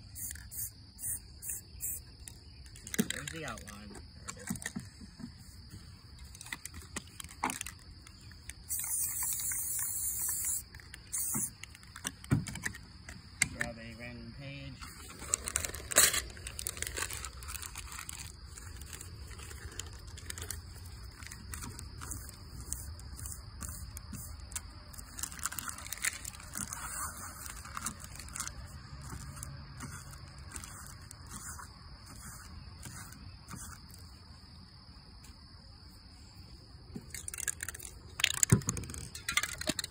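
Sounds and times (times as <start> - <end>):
high insect drone: 0.0 - 39.9
paper crinkling and scraping: 2.3 - 12.9, 14.8 - 34.2
aerosol spray can hissing: 8.7 - 11.5.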